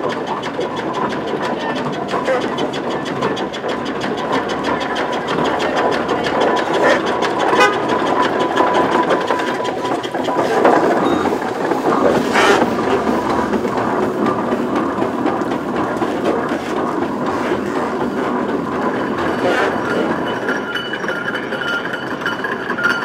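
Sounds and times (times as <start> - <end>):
steam engine chuffing: 0.0 - 23.0.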